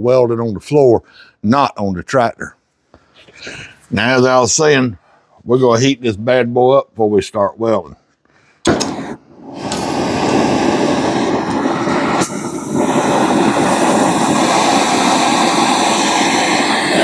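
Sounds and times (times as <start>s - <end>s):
torch flame hissing: 8.7s - 17.0s.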